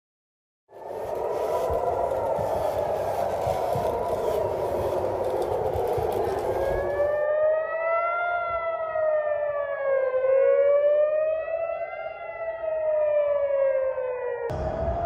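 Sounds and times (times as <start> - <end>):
air-raid sirens wailing: 0.7 - 15.0
rushing noise: 0.8 - 7.2, 14.5 - 15.0.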